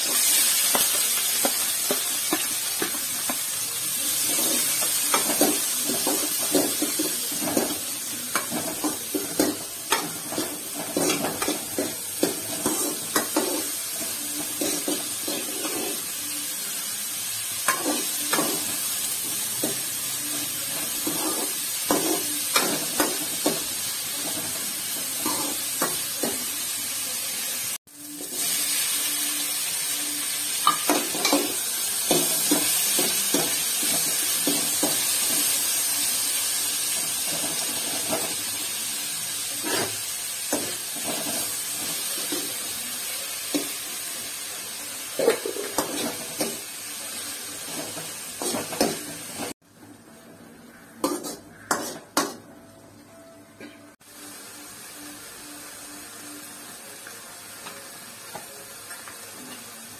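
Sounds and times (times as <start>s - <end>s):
vegetables sizzling in oil: 0.0s - 52.5s, 53.9s - 59.9s
metal ladle scraping pan: 51.0s - 52.3s.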